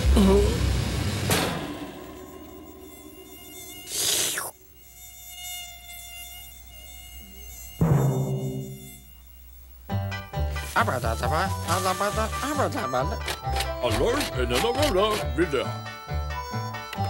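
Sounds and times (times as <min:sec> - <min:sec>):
hissing crackling burst: 0:00.0 - 0:04.6, 0:10.6 - 0:12.6
thin high steady buzz: 0:00.0 - 0:13.5.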